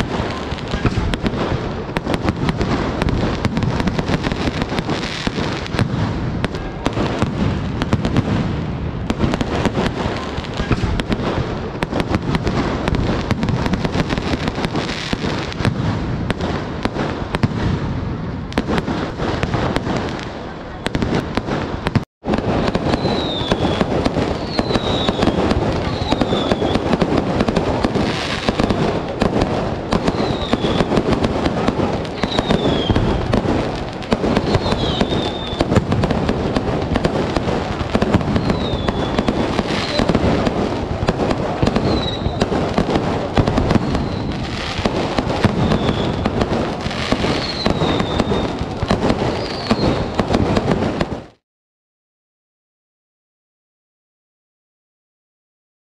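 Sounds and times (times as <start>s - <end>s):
fireworks crackling bangs: 0.0s - 51.4s
falling firework whistles: 22.6s - 51.0s.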